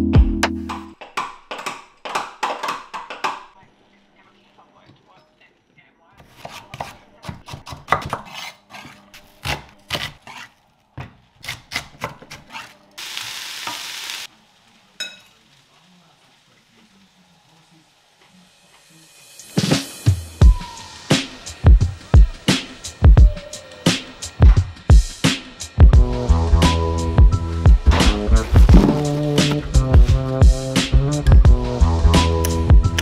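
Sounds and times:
knife chopping on wooden board: 6.2s - 12.6s
steady hiss: 13.0s - 25.8s.

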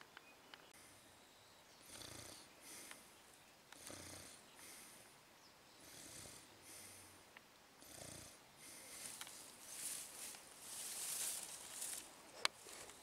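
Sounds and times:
person snoring: 1.9s - 2.4s, 3.8s - 4.4s, 5.8s - 7.0s, 7.8s - 9.2s.

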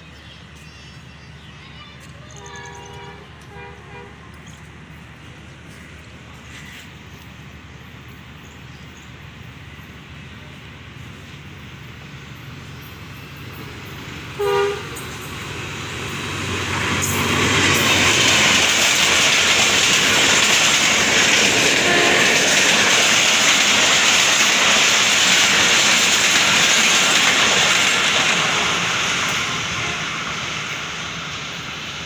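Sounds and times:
train passing on rails: 0.0s - 32.0s
locomotive horn blast: 2.4s - 4.4s, 14.4s - 15.1s, 21.8s - 22.4s.

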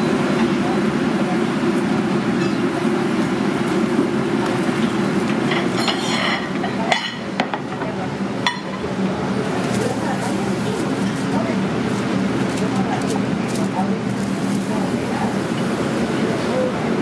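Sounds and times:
restaurant kitchen rumble: 0.0s - 17.0s
ceramic plates clinking: 5.4s - 8.9s.

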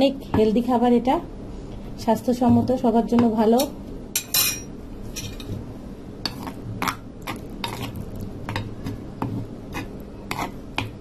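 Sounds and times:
metal spoon scraping bowl: 6.2s - 10.6s
wooden pestle mashing in bowl: 6.2s - 11.0s.

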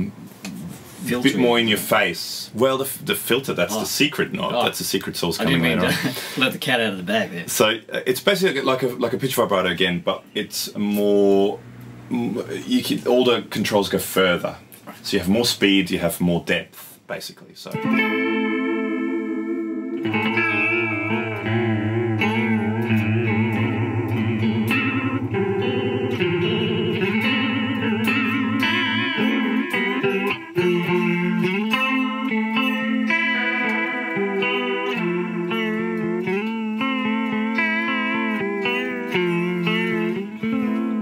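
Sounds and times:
electric guitar with pitch vibrato: 17.8s - 41.0s
held low guitar note: 17.8s - 41.0s.

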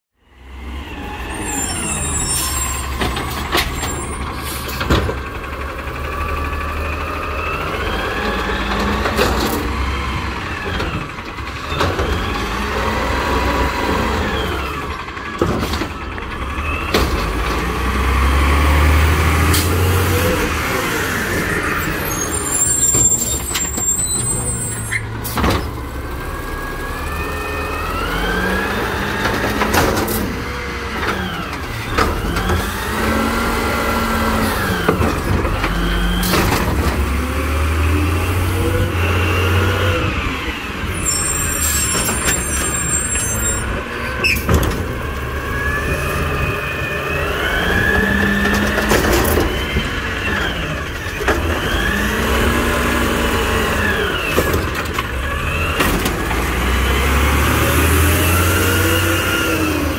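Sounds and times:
garbage truck engine running: 0.4s - 59.9s
air brakes hissing: 1.4s - 3.0s, 3.8s - 4.8s
hydraulic whine: 18.8s - 59.9s.

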